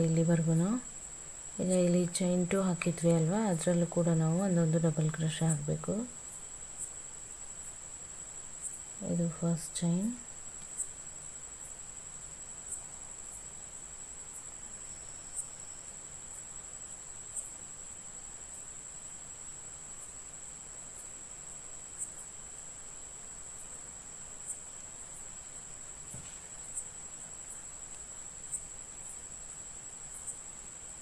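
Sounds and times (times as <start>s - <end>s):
soft background hiss: 0.0s - 31.0s
faint ticks: 10.5s - 11.0s, 26.3s - 28.7s.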